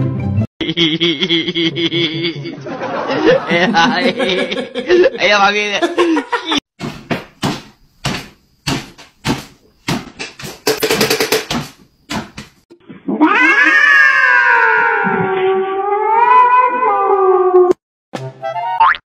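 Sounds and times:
cat yowling: 0:13.1 - 0:17.7.

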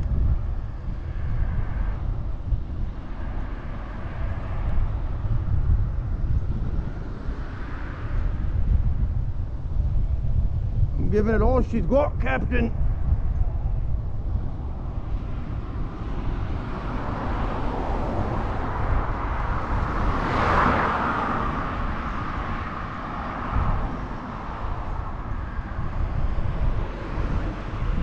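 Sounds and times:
wind on microphone: 0:00.0 - 0:28.0
vehicle passing by: 0:14.4 - 0:28.0.

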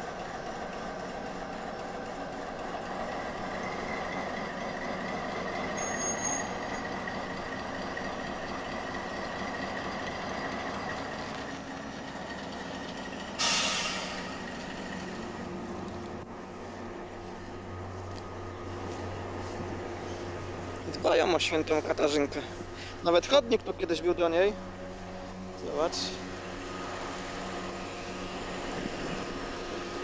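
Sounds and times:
wagons rolling on rails: 0:00.0 - 0:13.4, 0:17.9 - 0:30.0
diesel locomotive engine running: 0:00.0 - 0:30.0
short hiss of air: 0:13.4 - 0:14.4.

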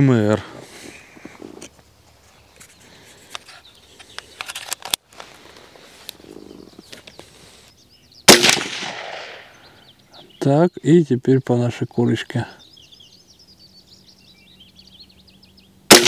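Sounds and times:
rifle shot with ringing tail: 0:08.3 - 0:09.6.

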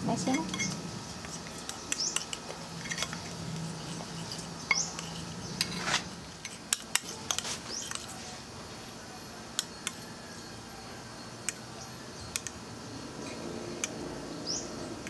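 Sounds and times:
fork beating batter in a bowl: 0:00.3 - 0:08.3.

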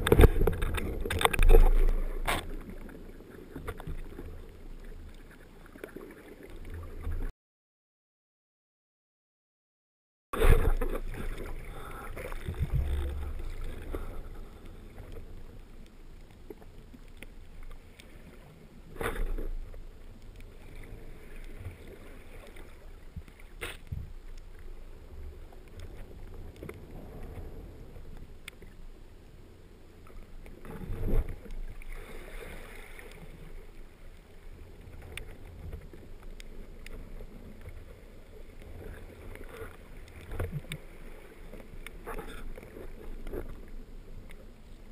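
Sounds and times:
muffled underwater churning water: 0:00.0 - 0:07.3, 0:10.4 - 0:44.9.

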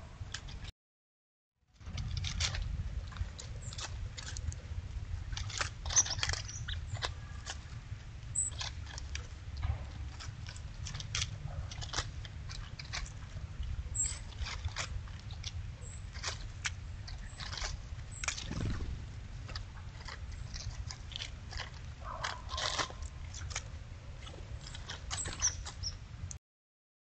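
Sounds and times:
low steady rumble: 0:01.8 - 0:26.4.

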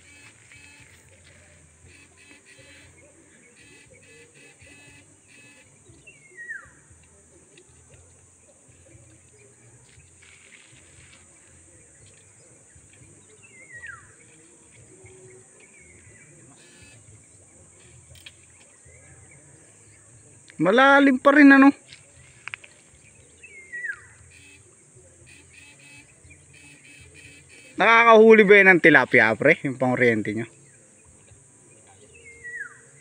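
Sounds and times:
high insect drone: 0:00.0 - 0:33.0
bird whistled call: 0:03.6 - 0:06.8, 0:13.4 - 0:14.2, 0:23.4 - 0:24.6, 0:32.1 - 0:33.0.

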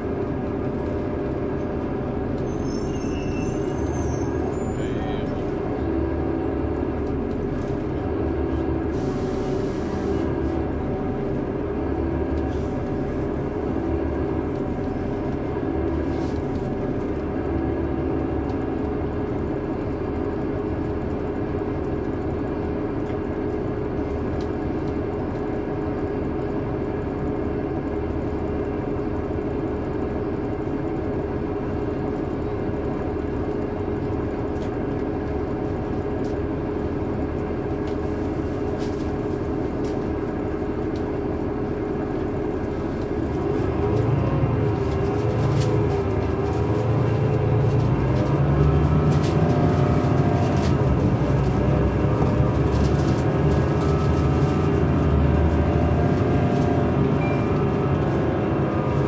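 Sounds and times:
bus diesel engine drone: 0:00.0 - 0:59.0.

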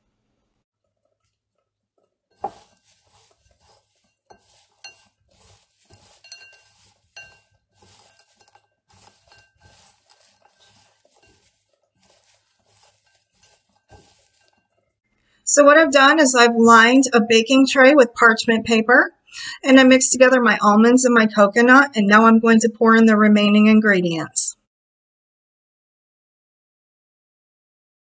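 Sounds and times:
hand mixing dry ingredients rustling: 0:00.8 - 0:14.9
nuts clinking against glass bowl: 0:02.4 - 0:14.8.

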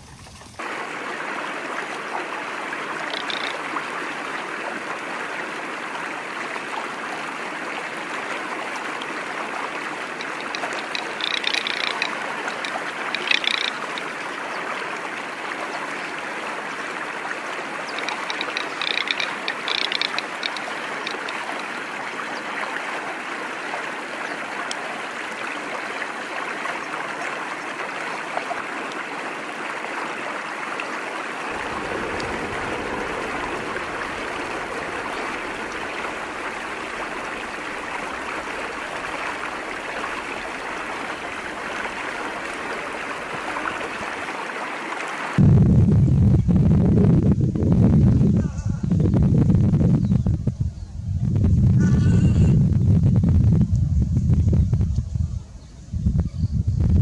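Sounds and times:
running water rushing: 0:00.0 - 0:45.4
rattling bird calls: 0:03.0 - 0:03.6, 0:10.1 - 0:14.3, 0:17.8 - 0:21.7, 0:31.6 - 0:43.8.

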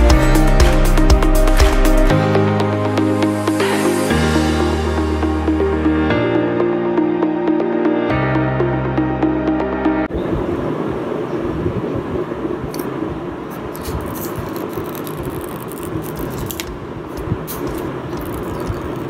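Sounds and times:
plastic film crinkling: 0:13.8 - 0:16.8.

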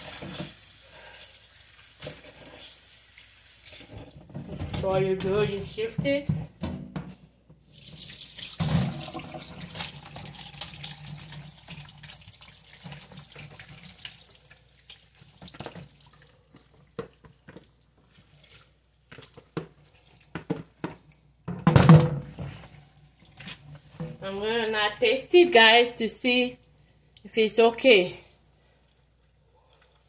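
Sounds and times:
water pouring into a metal sieve: 0:07.6 - 0:16.4
water splashing and draining: 0:07.6 - 0:20.2.

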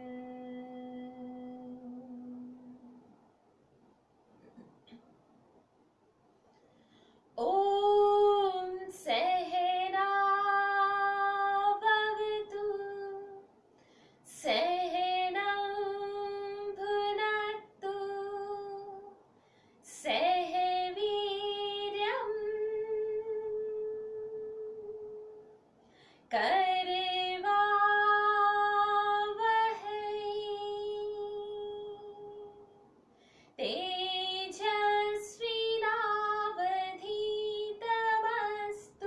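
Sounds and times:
woman chanting om: 0:00.0 - 0:03.0, 0:07.4 - 0:13.5, 0:14.2 - 0:19.2, 0:19.8 - 0:25.6, 0:26.3 - 0:32.8, 0:33.6 - 0:39.0
breath between chants: 0:06.6 - 0:07.3, 0:13.7 - 0:14.3, 0:19.3 - 0:19.8, 0:25.8 - 0:26.3, 0:33.1 - 0:33.6.

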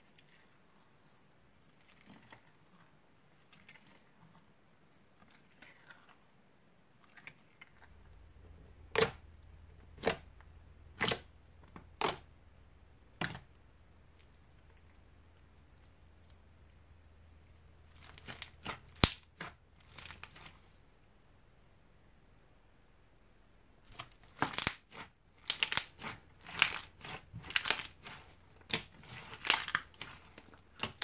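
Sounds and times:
slime squishing: 0:05.2 - 0:06.3, 0:07.0 - 0:12.3, 0:13.1 - 0:16.5, 0:17.5 - 0:20.8, 0:23.8 - 0:31.0
crunchy slime popping: 0:17.9 - 0:20.6, 0:23.9 - 0:31.0.

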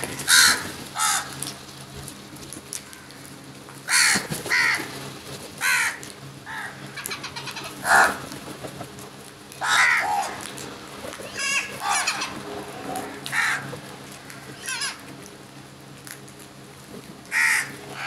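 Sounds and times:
crows cawing: 0:00.0 - 0:01.6, 0:02.8 - 0:05.0, 0:05.6 - 0:08.3, 0:09.6 - 0:10.6, 0:11.2 - 0:15.2, 0:17.3 - 0:18.0.

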